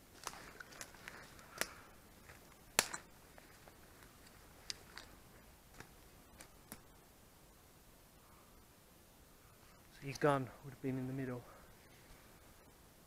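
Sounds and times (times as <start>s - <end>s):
dry twigs snapping: 0.1s - 6.9s.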